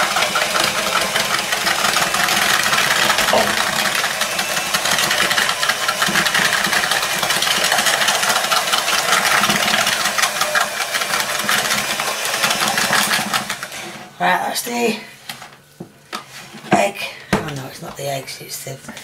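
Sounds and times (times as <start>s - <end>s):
beaters ticking through mixture: 0.0s - 13.8s
electric hand mixer running: 0.0s - 14.1s.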